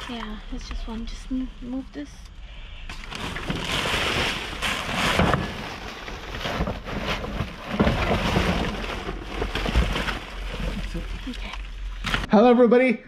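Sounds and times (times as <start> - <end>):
plastic bags crinkling: 2.9 - 12.3.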